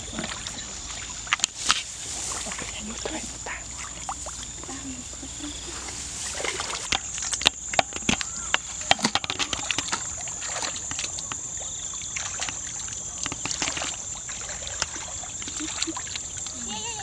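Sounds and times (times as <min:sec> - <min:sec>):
hands splashing in water: 0:05.8 - 0:11.5, 0:12.1 - 0:16.6.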